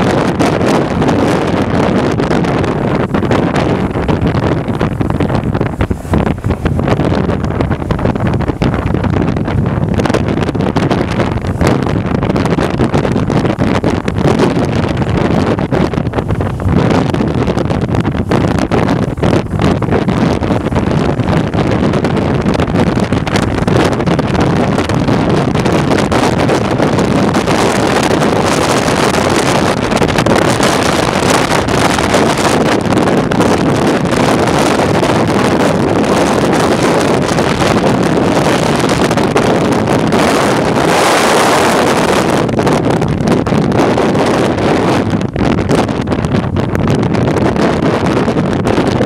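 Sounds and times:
wind rushing over microphone: 0:00.0 - 0:49.0.

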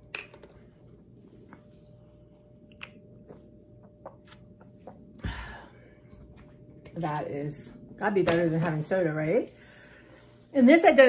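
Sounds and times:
faint steady hum: 0:00.0 - 0:11.0.

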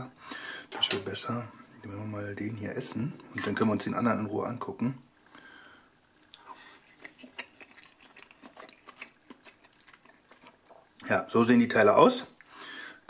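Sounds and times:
person chewing with mouth smacks: 0:06.2 - 0:11.1.

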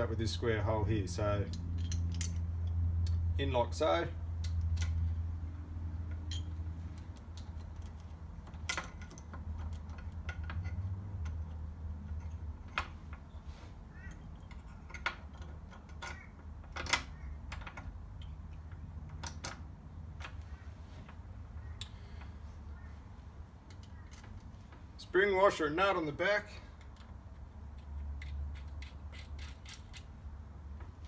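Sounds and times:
small metal parts clicking: 0:01.4 - 0:03.2, 0:04.4 - 0:05.2, 0:06.0 - 0:13.3, 0:14.0 - 0:20.4, 0:23.6 - 0:24.6, 0:26.6 - 0:31.0.

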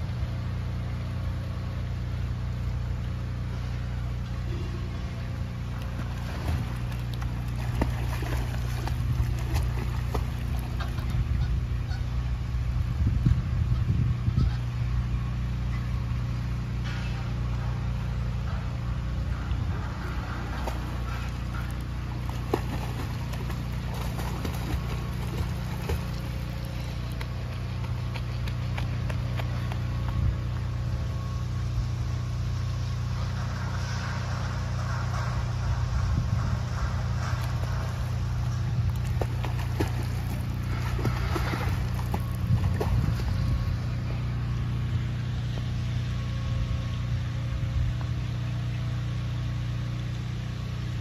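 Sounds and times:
low mechanical hum: 0:00.0 - 0:51.0
child splashing in pool: 0:05.8 - 0:11.1, 0:20.4 - 0:28.3, 0:38.9 - 0:43.4.

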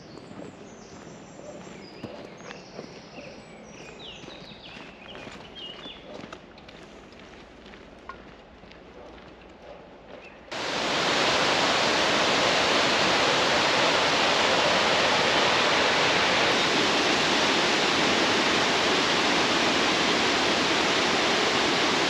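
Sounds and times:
rushing water: 0:10.5 - 0:22.0.

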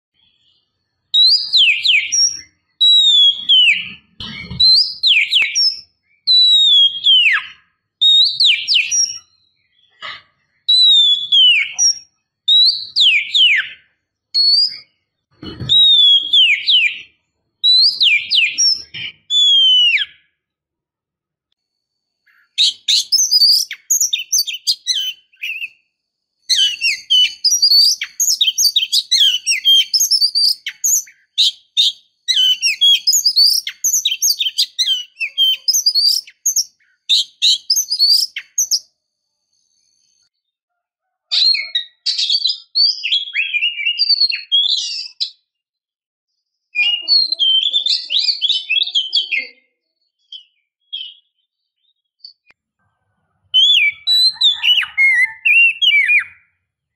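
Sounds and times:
bird chirps and trills: 0:00.2 - 0:20.4, 0:22.2 - 0:38.9, 0:53.6 - 0:56.6.

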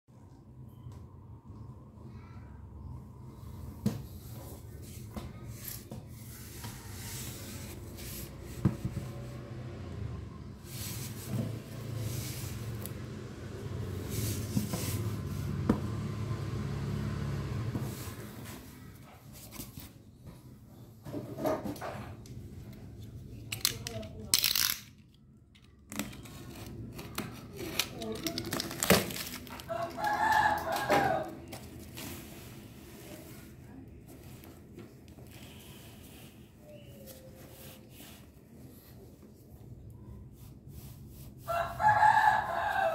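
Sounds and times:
rustling handling: 0:25.9 - 0:41.7
hands rubbing cardboard tube: 0:35.3 - 0:42.4.

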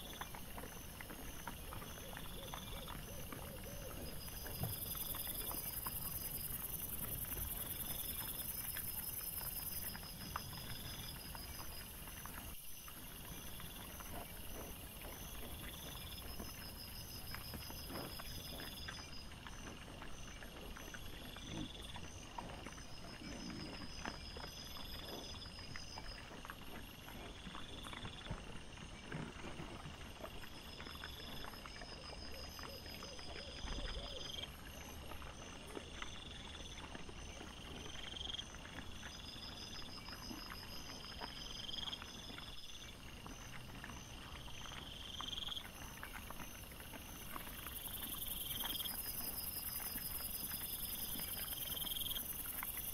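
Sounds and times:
rapid pulsing insect trills: 0:00.0 - 0:19.3, 0:38.0 - 0:52.9
insects chirping: 0:00.0 - 0:29.0, 0:29.9 - 0:52.9.

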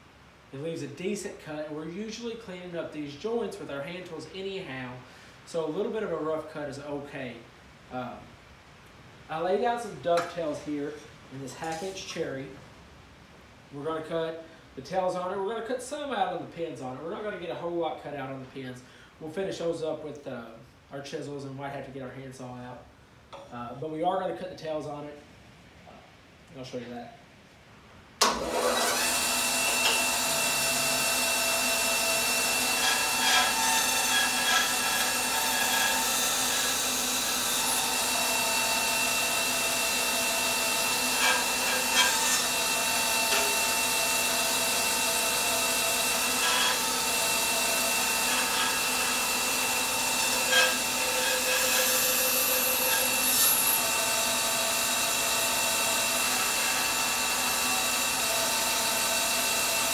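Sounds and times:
bandsaw whining: 0:28.2 - 0:59.9.

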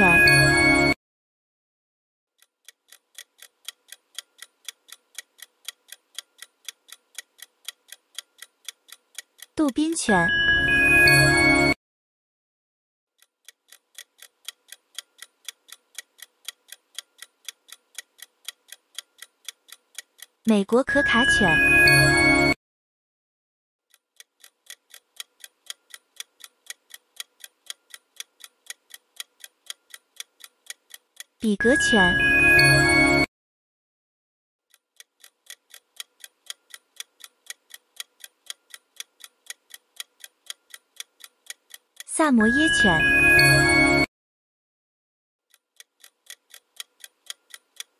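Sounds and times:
countdown timer ticking: 0:00.0 - 0:01.0, 0:03.2 - 0:11.8, 0:14.0 - 0:22.6, 0:24.7 - 0:33.3, 0:38.0 - 0:44.1.

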